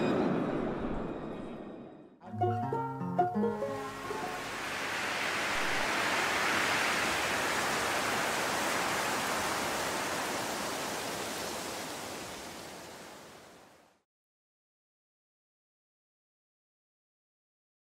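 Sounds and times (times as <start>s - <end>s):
steady rushing noise: 3.8s - 13.6s.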